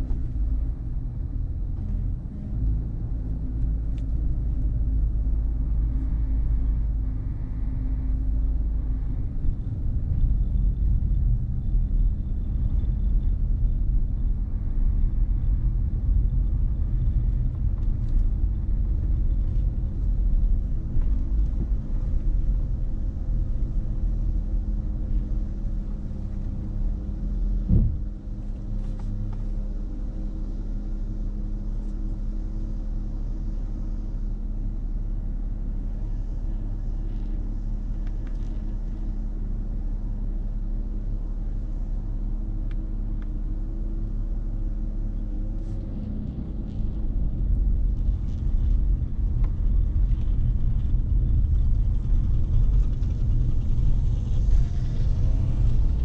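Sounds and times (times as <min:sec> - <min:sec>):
car driving rumble: 0:00.0 - 0:56.0
short knock: 0:27.7 - 0:28.0.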